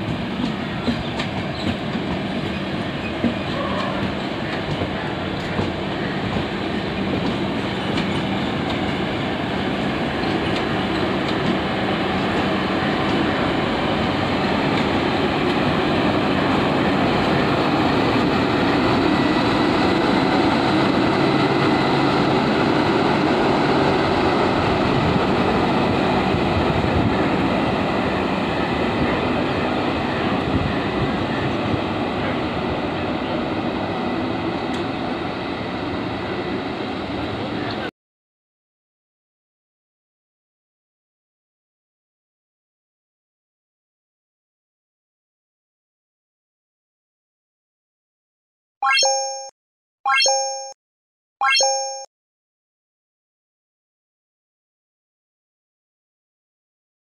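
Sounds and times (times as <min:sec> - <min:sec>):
train wheels rumbling on rails: 0:00.0 - 0:37.9.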